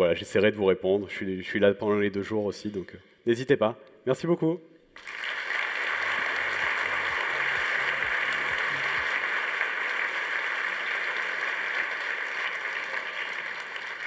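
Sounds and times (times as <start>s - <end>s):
audience applauding: 5.0s - 14.0s.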